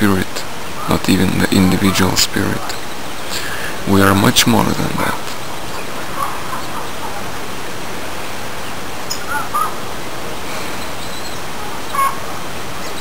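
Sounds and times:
steady outdoor hiss: 0:00.0 - 0:13.0
bird chirps: 0:00.7 - 0:03.8, 0:04.9 - 0:07.3, 0:08.6 - 0:09.8, 0:10.4 - 0:13.0.

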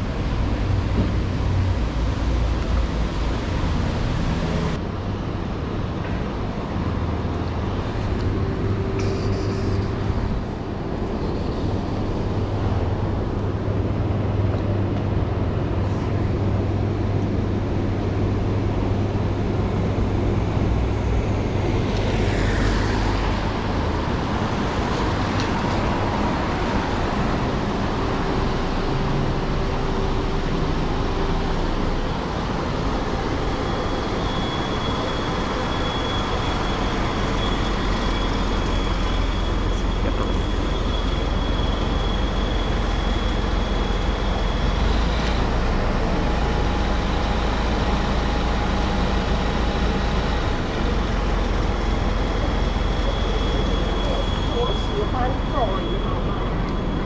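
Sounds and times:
traffic rumble: 0:00.0 - 0:57.0
thin high whine: 0:08.3 - 0:13.0, 0:21.6 - 0:57.0.

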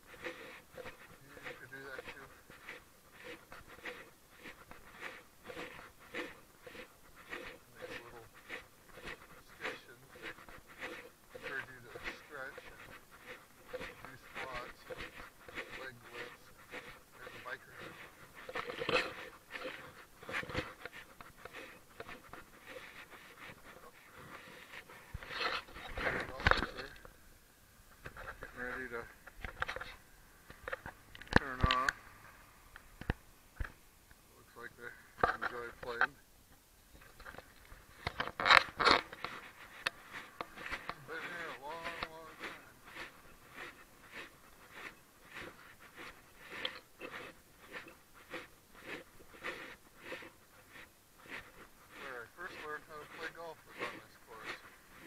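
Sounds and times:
person breathing heavily: 0:00.0 - 0:26.4
footsteps on concrete: 0:00.0 - 0:27.2, 0:37.0 - 0:55.0.

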